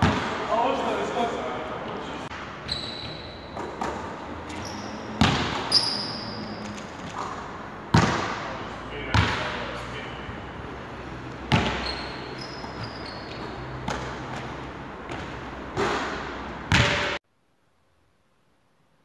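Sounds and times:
basketball bouncing on wooden floor: 3.0s - 6.0s, 6.6s - 8.3s, 11.5s - 14.5s.

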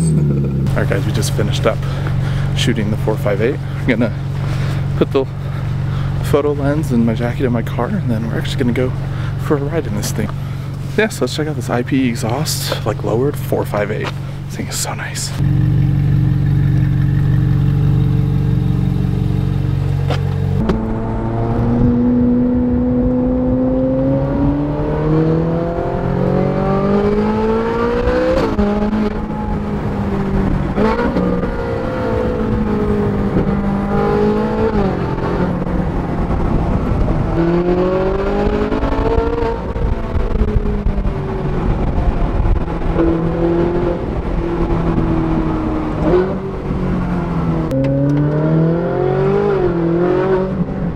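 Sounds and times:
car engine accelerating through gears: 0.0s - 7.0s, 15.4s - 50.9s
car engine idling: 0.0s - 21.4s.

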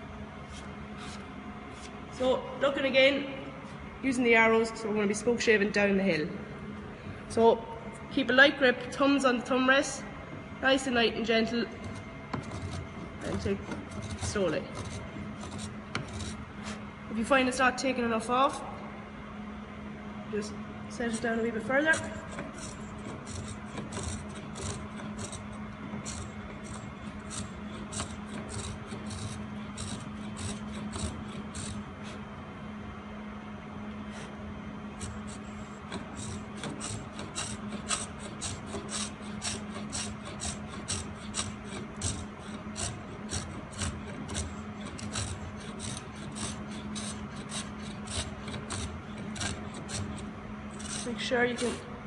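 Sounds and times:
steady low hum: 0.0s - 52.0s
spokeshave scraping wood: 0.5s - 2.0s, 11.8s - 16.9s, 21.0s - 32.2s, 34.1s - 51.9s.

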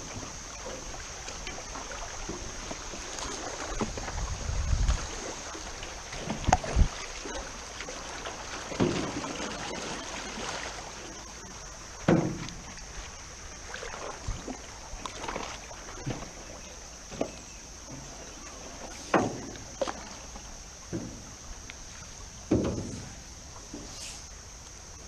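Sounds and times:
paddle strokes splashing: 0.0s - 25.0s
rushing water: 0.0s - 25.0s
knocks on aluminum canoe: 12.0s - 12.6s, 22.4s - 23.1s.

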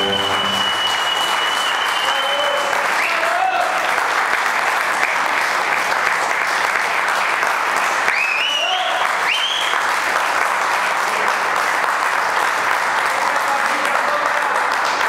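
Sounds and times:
short high calls: 0.0s - 2.3s
audience applauding: 0.0s - 15.0s.

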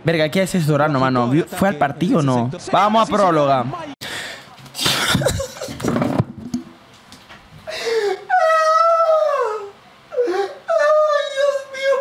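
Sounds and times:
man wailing: 8.0s - 12.0s.

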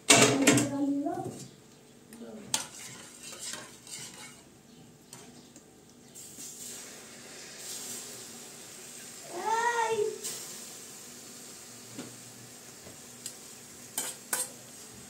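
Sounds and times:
hot fat sizzling: 6.2s - 15.0s.

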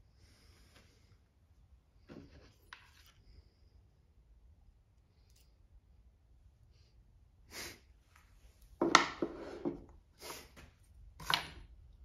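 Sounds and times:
tool scraping: 8.8s - 9.8s.

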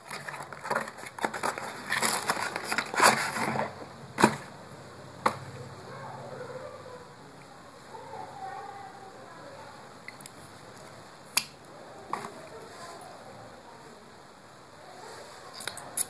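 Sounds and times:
cardboard box rustling and scraping: 0.0s - 4.5s.

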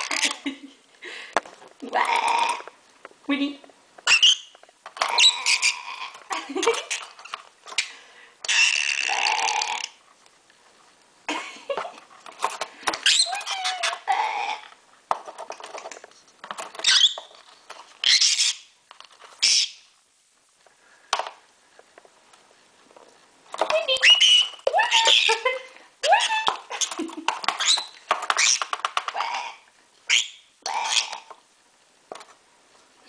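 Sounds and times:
bird chattering and squawking: 5.1s - 6.2s, 8.5s - 9.9s, 19.4s - 19.8s, 26.2s - 31.3s.

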